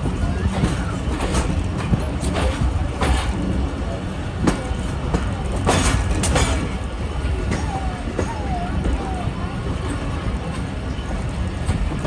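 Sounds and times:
train wheels rumbling on rail: 0.0s - 12.0s
sharp track clacks: 4.3s - 6.8s.

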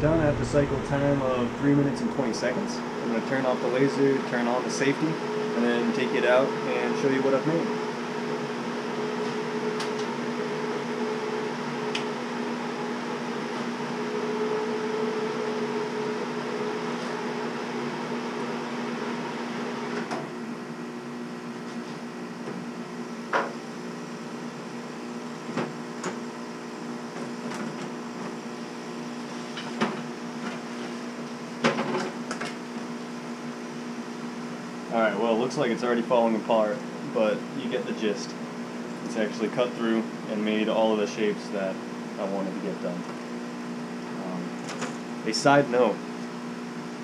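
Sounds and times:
laser cutter hum: 0.0s - 13.2s
exhaust fan: 0.0s - 47.0s.

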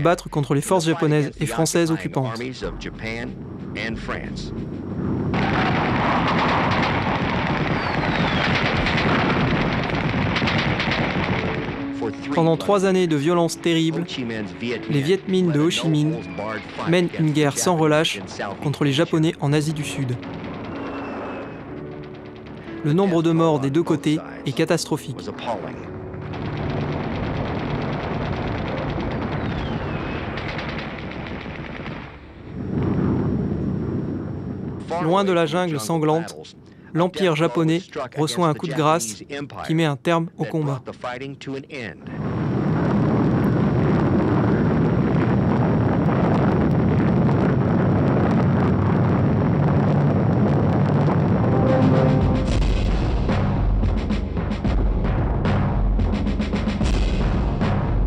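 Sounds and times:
battle gunfire: 5.3s - 12.0s, 26.1s - 32.3s
machine-gun fire: 5.3s - 12.0s, 18.4s - 23.4s, 25.9s - 32.4s
falling whistle: 7.6s - 8.6s, 20.6s - 21.7s, 29.2s - 30.5s
short falling whistle: 7.7s - 8.4s.

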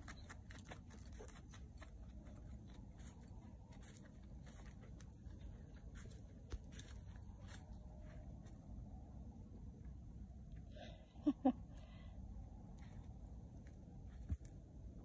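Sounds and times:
footsteps and hooves: 0.0s - 8.9s
low steady rumble: 0.0s - 15.0s.

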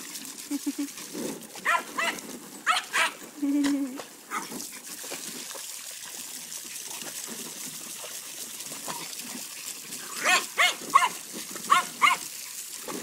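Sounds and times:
water splashing in plastic pool: 0.0s - 13.0s
dog barking: 1.6s - 3.2s, 10.2s - 12.2s.

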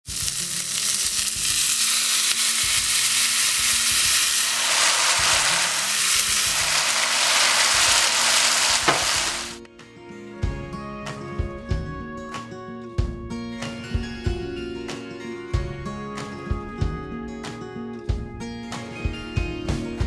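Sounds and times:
sauce sizzling in a grill pan: 0.0s - 9.6s.

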